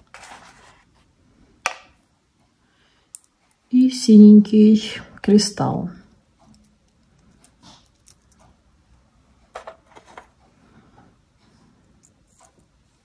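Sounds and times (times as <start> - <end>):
beads clicking on metal pin: 6.1 - 8.6.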